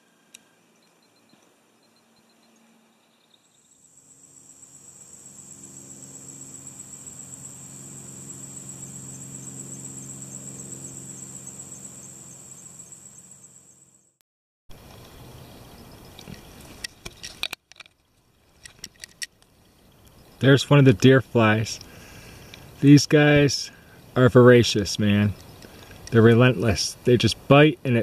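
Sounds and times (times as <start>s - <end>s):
low steady hum: 0.0s - 14.1s
insects trilling: 0.0s - 14.2s, 15.0s - 28.0s.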